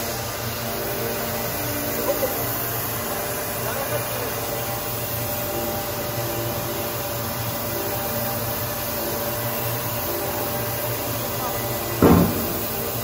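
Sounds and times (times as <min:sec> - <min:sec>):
screw press machine humming: 0:00.0 - 0:13.0
water hissing: 0:11.5 - 0:13.0.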